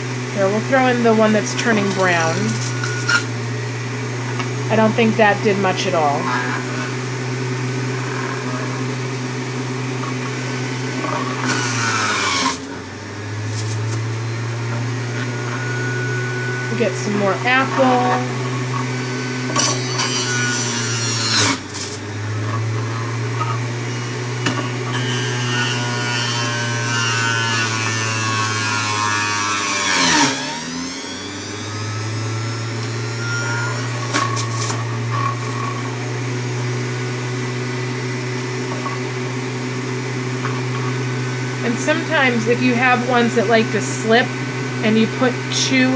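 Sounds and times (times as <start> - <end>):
electric juicer grinding apple: 0.0 - 45.9.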